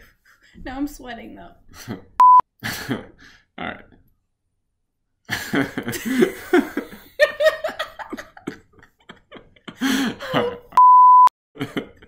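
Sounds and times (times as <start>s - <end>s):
loud steady beep: 2.2s - 2.4s, 10.8s - 11.3s
woman and man laughing: 5.3s - 10.8s.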